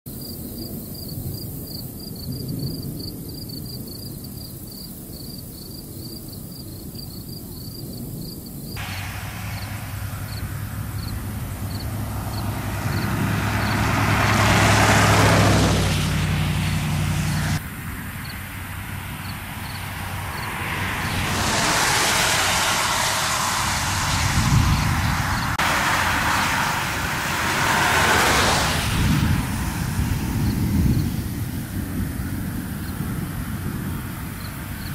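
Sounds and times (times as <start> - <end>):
insects chirping: 0.1 - 15.7, 16.6 - 27.1, 27.9 - 31.4
low wind noise: 0.1 - 34.9
vehicle passing: 8.8 - 34.9.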